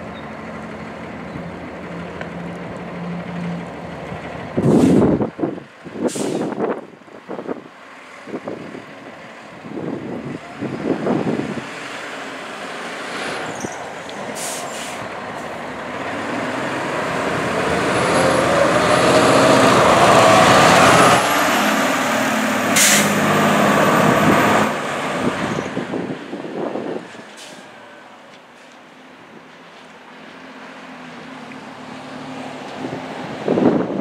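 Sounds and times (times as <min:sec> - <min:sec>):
diesel truck engine accelerating: 0:00.0 - 0:34.0
air brake hisses: 0:04.6 - 0:05.1, 0:06.0 - 0:06.6, 0:14.4 - 0:15.0, 0:22.8 - 0:23.2.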